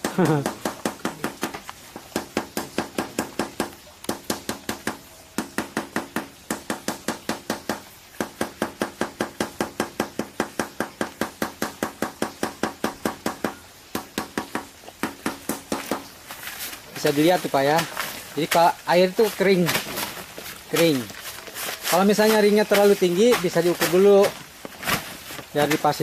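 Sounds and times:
hammer tapping on plastic pipe: 0.0s - 16.1s.

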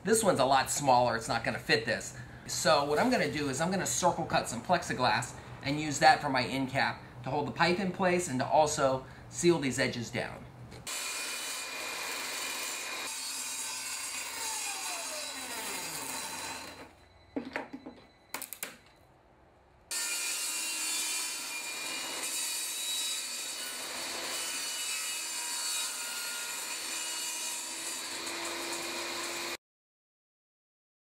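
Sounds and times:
table saw cutting plexiglass: 10.8s - 17.0s, 19.9s - 29.6s.

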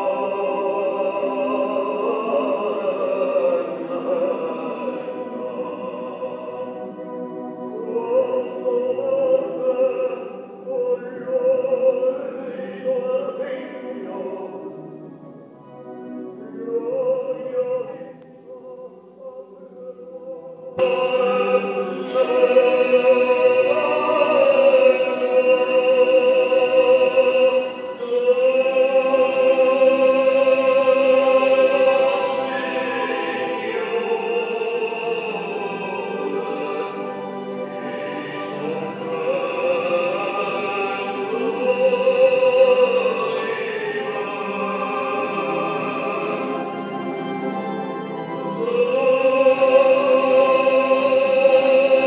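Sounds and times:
choir singing sacred song: 0.0s - 52.0s.

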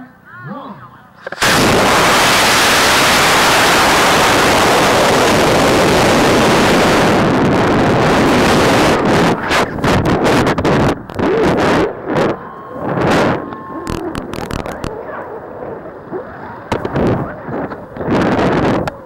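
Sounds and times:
rocket motor rushing: 1.2s - 14.9s.

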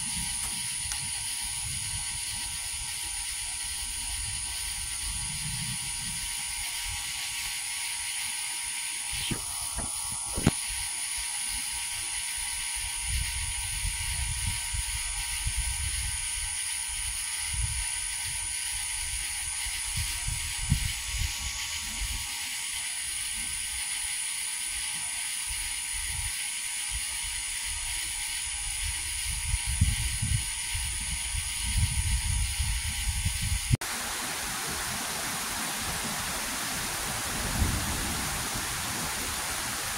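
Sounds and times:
high-pitched outdoor hiss: 0.0s - 39.9s.

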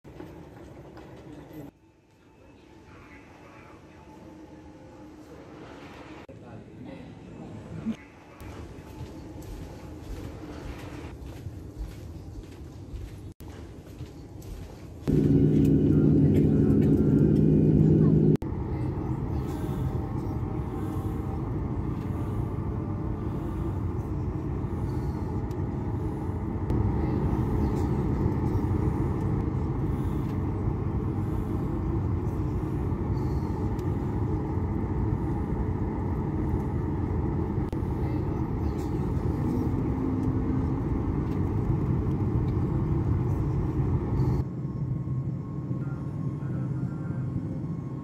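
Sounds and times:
jet cabin engine rumble: 15.0s - 48.0s.

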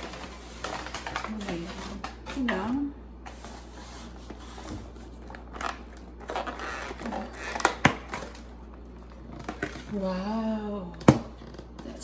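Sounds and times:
paper bag rustling: 0.0s - 8.4s.

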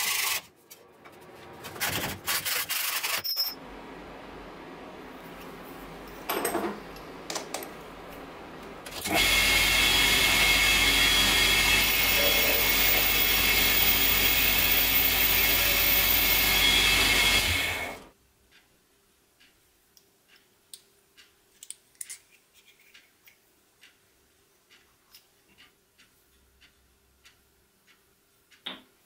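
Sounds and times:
metal lathe whining: 9.0s - 18.1s.

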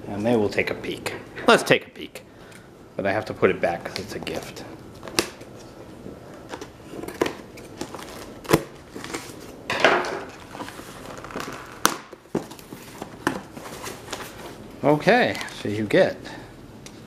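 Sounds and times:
cardboard scraping rustle: 12.4s - 14.6s.

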